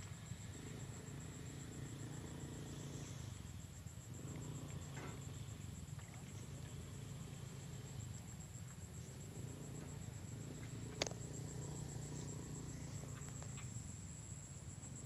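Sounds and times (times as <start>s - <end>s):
insect trilling: 4.0s - 14.0s.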